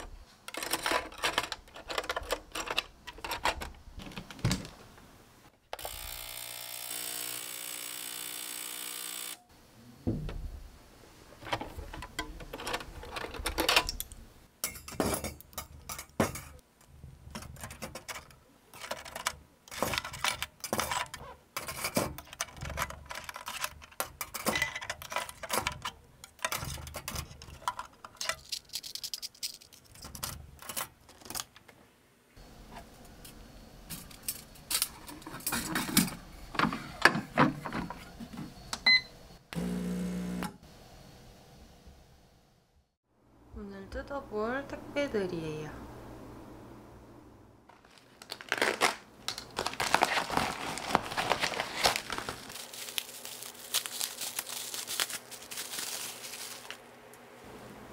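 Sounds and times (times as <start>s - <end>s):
small appliance humming: 5.7s - 9.5s, 38.6s - 40.7s
metal tools clinking in steel basket: 17.4s - 31.4s.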